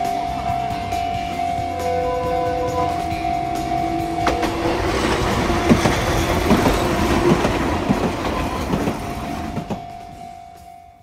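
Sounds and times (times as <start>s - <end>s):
crossing warning bell ringing: 0.0s - 11.0s
tram wheels clacking over rail joints: 2.4s - 10.2s.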